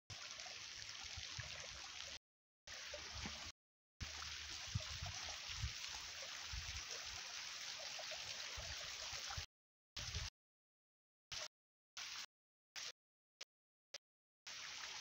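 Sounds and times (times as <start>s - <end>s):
stream water flowing: 0.1s - 10.3s, 14.5s - 15.0s.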